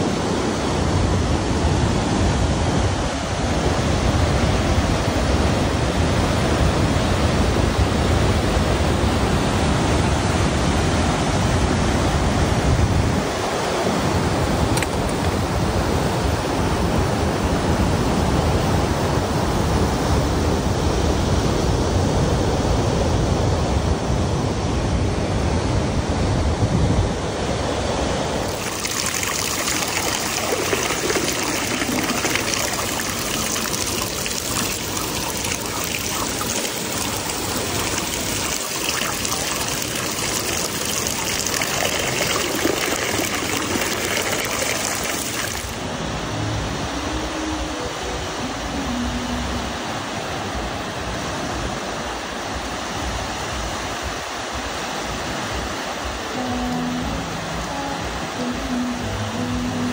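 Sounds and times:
rushing water rumbling: 27.1s - 59.9s
hissing water splash: 28.4s - 45.8s.

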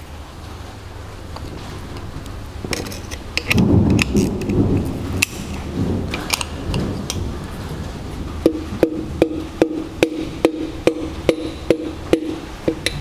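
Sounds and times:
thunder rumbling: 0.0s - 13.0s
tools clicking on metal: 2.7s - 4.6s, 5.2s - 6.8s.

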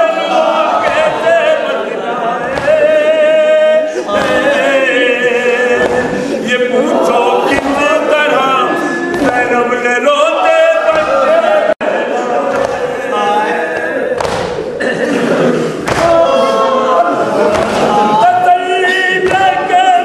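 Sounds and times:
men singing lament: 0.0s - 14.2s, 15.2s - 20.0s.

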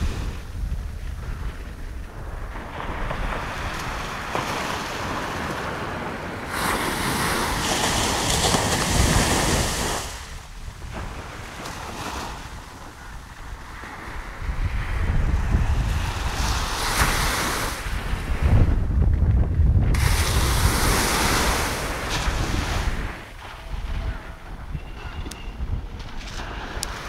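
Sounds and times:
sea surf breaking on shore: 0.0s - 18.9s, 19.9s - 27.0s
wind buffeting microphone: 0.0s - 27.0s.

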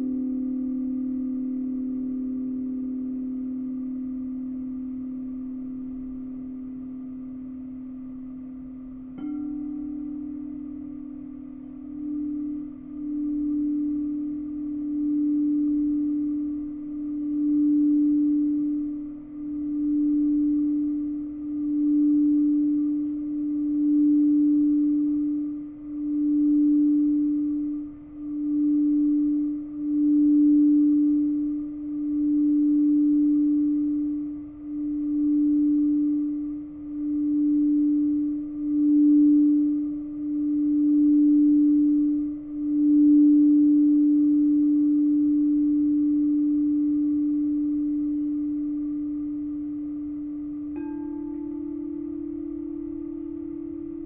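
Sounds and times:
singing bowl ringing: 0.0s - 54.0s.

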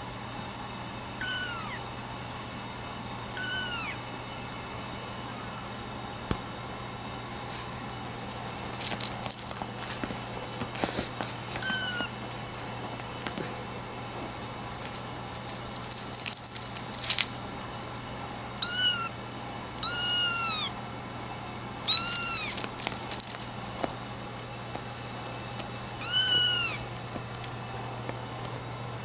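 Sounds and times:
kittens mewing: 1.2s - 1.8s, 3.4s - 4.0s, 8.5s - 19.2s, 19.8s - 20.8s, 21.9s - 23.5s, 26.0s - 26.9s
scratchy rustling and clicking: 7.5s - 18.0s, 22.1s - 23.9s.

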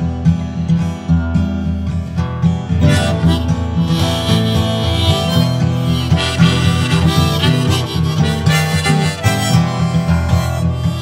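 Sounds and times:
strummed acoustic guitar: 0.0s - 11.0s
harmonica melody: 2.8s - 11.0s.

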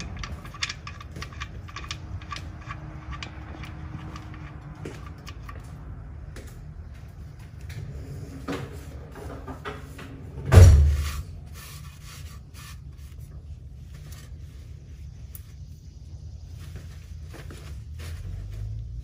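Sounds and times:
hands clicking and rubbing: 0.0s - 5.8s.

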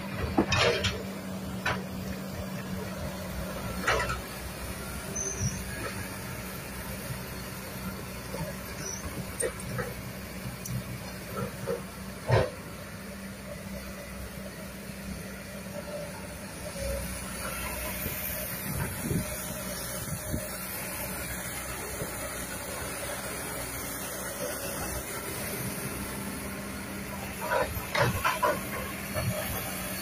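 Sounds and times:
excavator diesel engine running: 0.0s - 30.0s.

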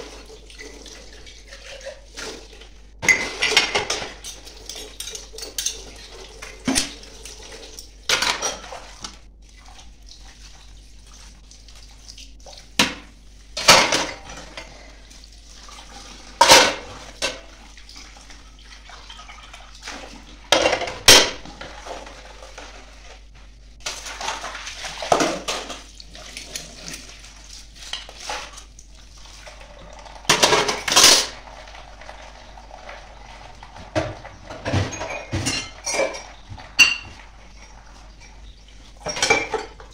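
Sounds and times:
tap water running: 0.0s - 39.9s
dishes clattering on steel tray: 3.0s - 7.0s, 12.8s - 14.7s, 16.4s - 17.5s, 20.5s - 21.5s, 30.3s - 31.4s, 33.8s - 39.9s.

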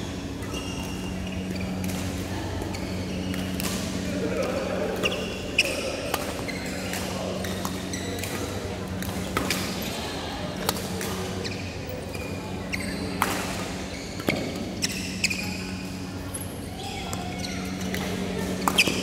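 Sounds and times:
steady low hum: 0.0s - 19.0s
rackets striking shuttlecock: 3.2s - 3.9s, 13.2s - 14.6s, 17.1s - 19.0s.

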